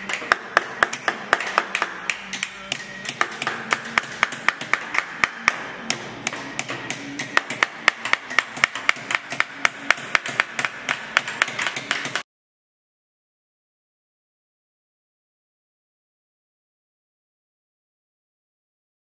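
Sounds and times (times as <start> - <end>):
hammer tapping copper sheet: 0.0 - 12.2.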